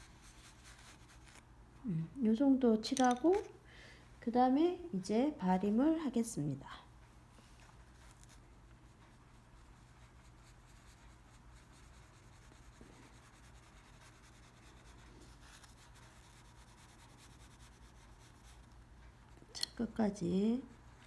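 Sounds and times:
brush rubbing on paper: 0.0s - 1.4s, 7.7s - 18.9s, 20.6s - 21.0s
low steady hum: 0.0s - 21.0s.

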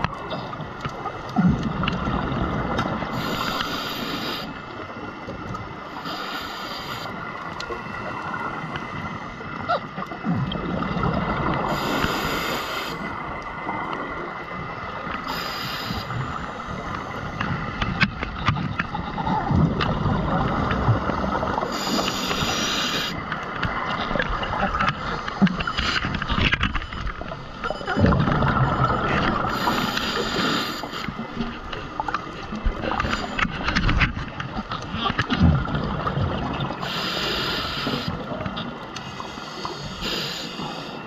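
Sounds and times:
steady underwater rumble: 0.0s - 41.0s
underwater bubbles gushing: 0.0s - 41.0s
faint clicks: 5.2s - 7.9s.

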